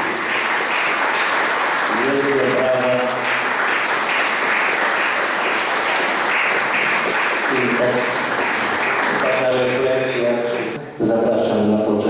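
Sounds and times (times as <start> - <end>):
audience applauding: 0.0 - 10.8
person speaking: 9.1 - 12.0.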